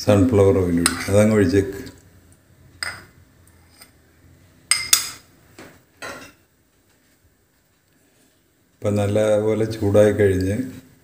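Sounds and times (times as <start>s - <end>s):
spoon and glass bowl clinking: 2.8s - 3.1s, 4.7s - 5.3s.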